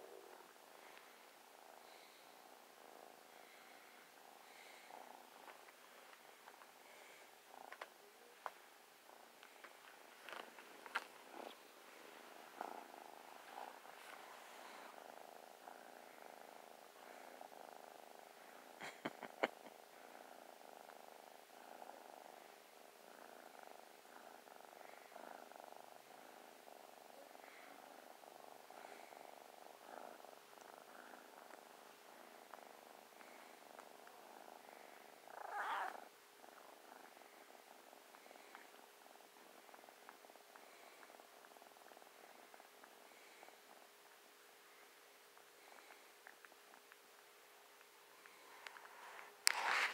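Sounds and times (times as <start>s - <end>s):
kitten purring: 0.0s - 49.9s
rustle of blanket: 9.4s - 16.6s, 48.2s - 49.9s.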